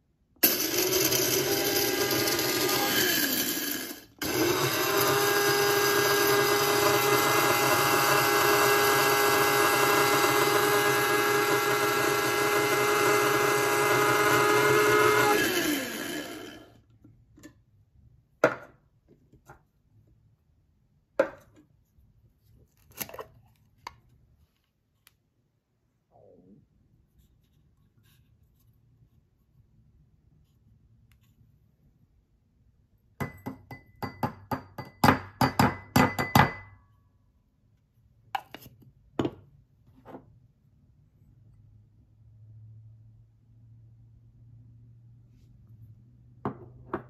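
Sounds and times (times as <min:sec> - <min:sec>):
coffee grinder whining: 0:00.4 - 0:16.8.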